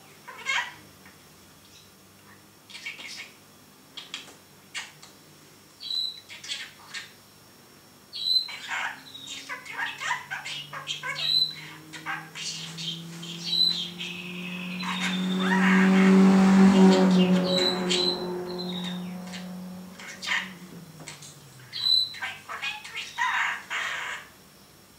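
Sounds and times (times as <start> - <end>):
faint low hum rising: 7.5 - 22.6
budgerigar chattering and chirping: 8.2 - 15.8, 20.0 - 24.2.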